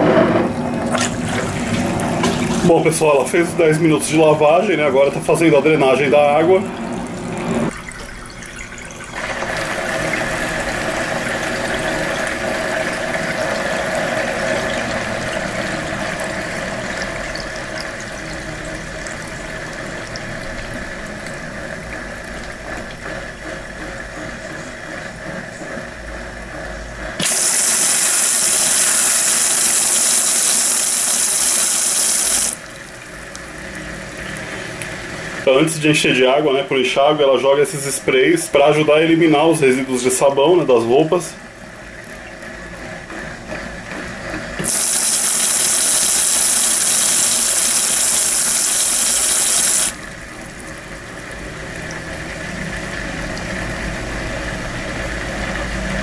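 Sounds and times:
pump humming: 0:00.0 - 0:56.0
water running: 0:00.6 - 0:26.4, 0:27.1 - 0:55.8
water spraying hiss: 0:27.2 - 0:32.6, 0:44.6 - 0:50.0.

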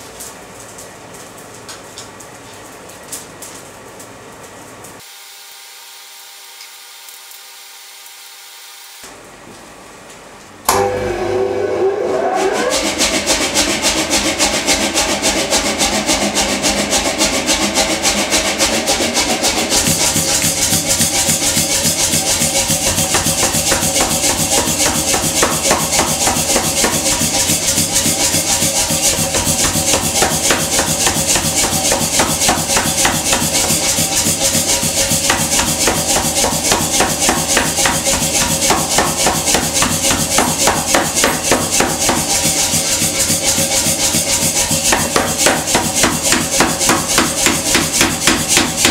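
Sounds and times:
hammer striking hot metal: 0:10.7 - 0:11.0, 0:12.9 - 0:48.9
power hammer motor hum: 0:10.7 - 0:42.7.

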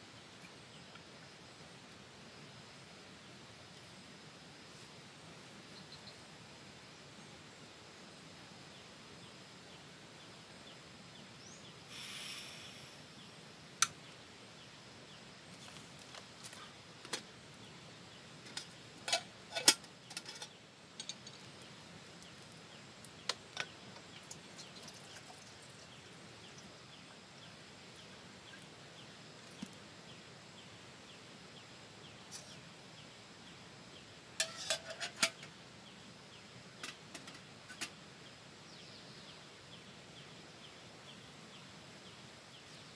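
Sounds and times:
faint outdoor background noise: 0:00.0 - 0:42.9
short gas hiss: 0:11.8 - 0:13.3
camping gear clicks and knocks: 0:18.4 - 0:21.5.

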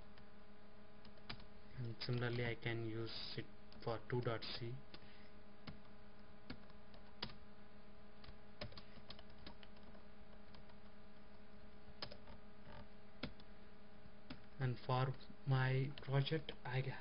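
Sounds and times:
low electrical hum: 0:00.0 - 0:17.0
keyboard keys clicking: 0:08.2 - 0:10.9, 0:12.0 - 0:13.5.

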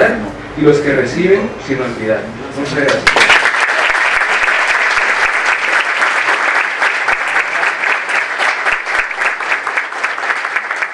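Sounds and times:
audience applauding: 0:03.0 - 0:10.9.

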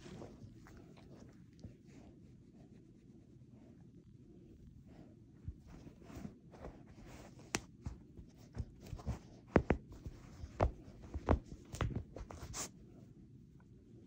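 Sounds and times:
plush toy rustling: 0:05.4 - 0:12.8.

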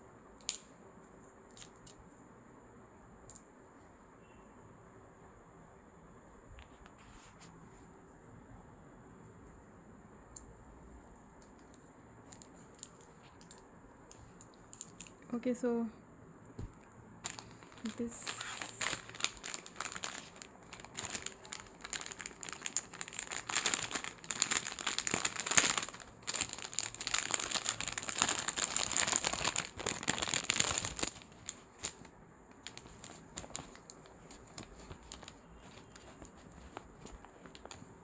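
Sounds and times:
plastic packaging crinkling: 0:14.2 - 0:15.3, 0:17.2 - 0:38.0.

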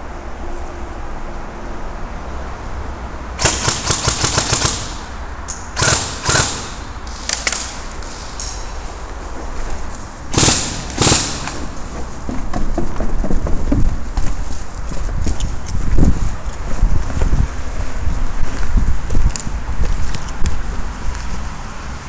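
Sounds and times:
airsoft rifle firing bursts: 0:03.4 - 0:05.2, 0:05.8 - 0:07.9, 0:10.3 - 0:11.8.

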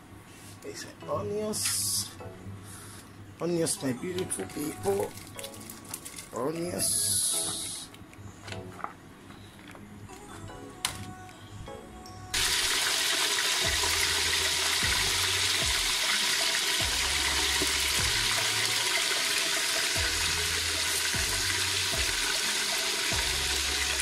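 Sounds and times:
pot boiling with rushing hiss: 0:12.4 - 0:24.0.

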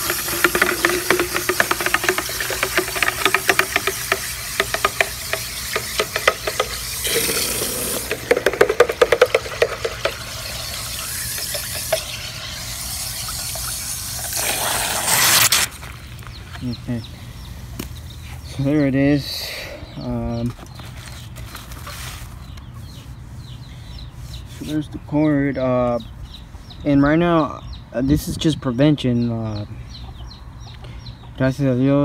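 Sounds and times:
stick knocking against bucket: 0:00.0 - 0:14.4
water sloshing in bucket: 0:00.0 - 0:16.0
rustle: 0:20.5 - 0:23.2.

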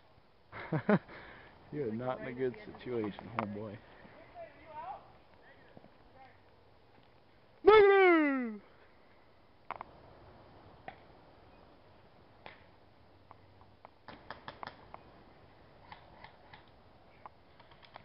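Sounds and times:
faint sharp clicks and snaps: 0:12.4 - 0:15.0, 0:15.8 - 0:18.0.

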